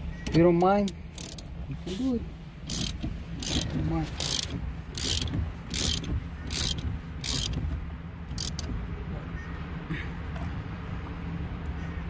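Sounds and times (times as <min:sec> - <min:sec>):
ratchet wrench clicking: 0:00.8 - 0:01.5, 0:02.7 - 0:07.6, 0:08.4 - 0:08.7.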